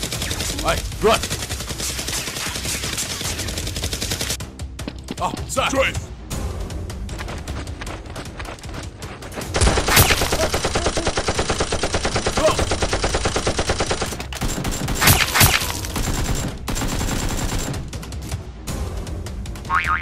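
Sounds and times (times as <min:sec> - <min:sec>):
rapid automatic gunfire: 0:00.0 - 0:04.4, 0:09.6 - 0:17.8.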